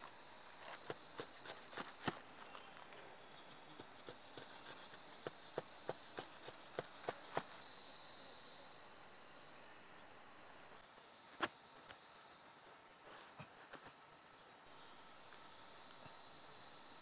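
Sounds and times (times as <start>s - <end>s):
insect chirr: 0.0s - 17.0s
machete shaving wooden stick: 0.6s - 7.6s.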